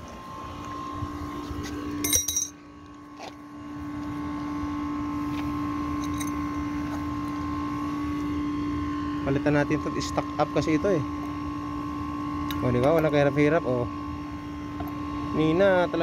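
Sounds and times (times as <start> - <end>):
steady machine hum: 0.0 - 16.0
metal tool clinking on hardware: 2.0 - 2.6.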